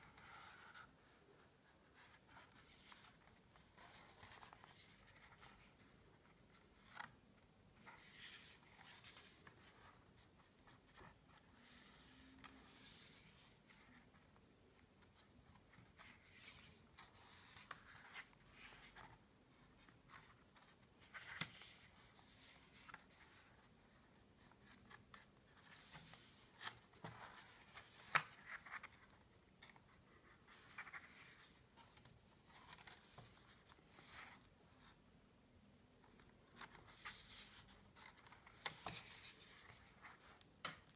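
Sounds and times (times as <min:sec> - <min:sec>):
paper rustling: 0:24.5 - 0:34.5.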